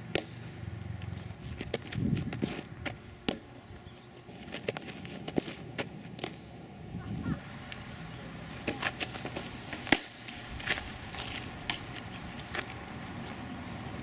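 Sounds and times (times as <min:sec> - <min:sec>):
ball smacking into mitt: 0:00.1 - 0:00.4, 0:08.6 - 0:10.8.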